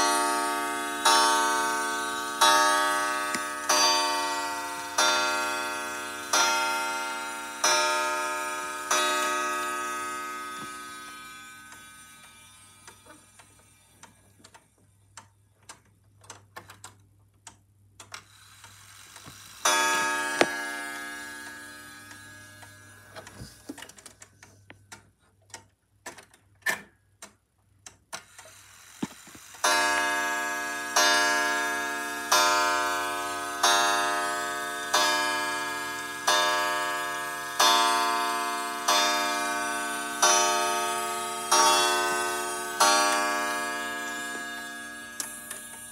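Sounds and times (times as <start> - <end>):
clock chime strikes ringing: 0.0 - 13.0, 19.6 - 23.6, 29.6 - 45.9
clock movement clicking and ticking: 0.0 - 45.9.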